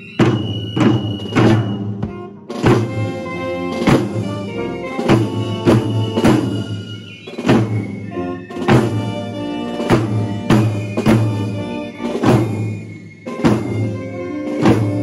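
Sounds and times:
marching brass band playing: 0:00.0 - 0:15.0
snare drums beating a march: 0:00.0 - 0:15.0.

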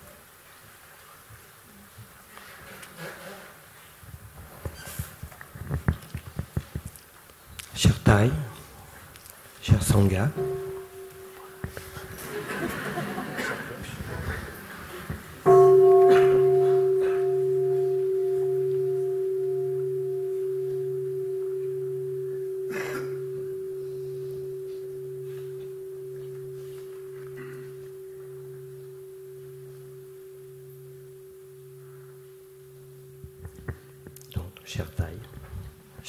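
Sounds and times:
bowl bell ringing: 0:09.7 - 0:13.8, 0:15.4 - 0:34.4
pulsing low hum: 0:10.3 - 0:12.5, 0:15.4 - 0:34.2.

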